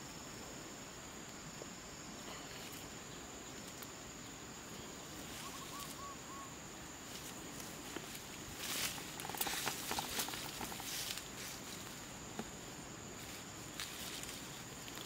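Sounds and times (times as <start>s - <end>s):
faint hiss: 0.0s - 15.0s
soft chirps: 2.2s - 7.6s.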